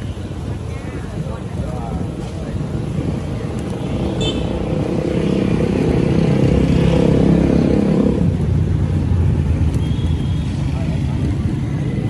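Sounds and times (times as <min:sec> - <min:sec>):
vehicle engine passing: 0:04.5 - 0:09.7.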